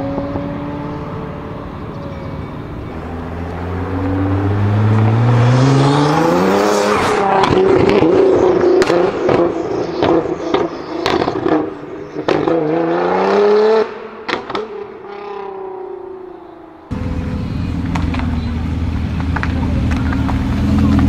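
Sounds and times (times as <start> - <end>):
car engine accelerating: 0.0 - 21.0.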